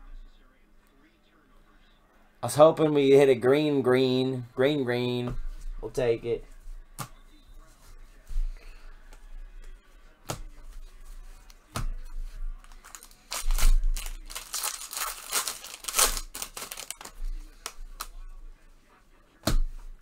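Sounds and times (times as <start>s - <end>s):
foil wrapper tearing and crinkling: 12.7s - 18.1s.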